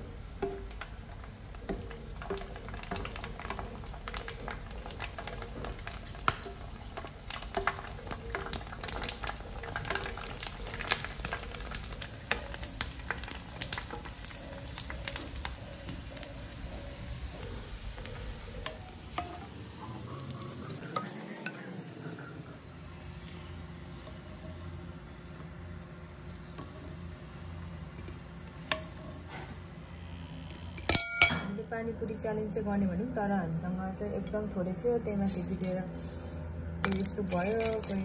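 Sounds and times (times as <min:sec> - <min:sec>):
dough deep-frying in oil: 0:00.0 - 0:32.6, 0:36.8 - 0:38.0
sharp crackling pops: 0:00.4 - 0:21.1.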